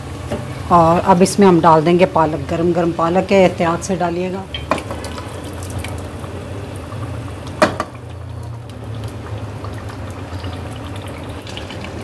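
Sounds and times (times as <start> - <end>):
gravy bubbling in a pot: 4.6 - 12.0.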